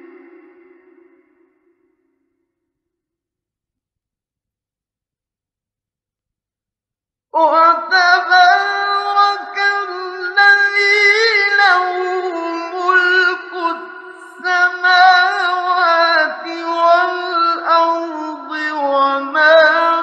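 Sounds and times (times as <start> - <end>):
man reciting melodically: 7.4 - 20.0.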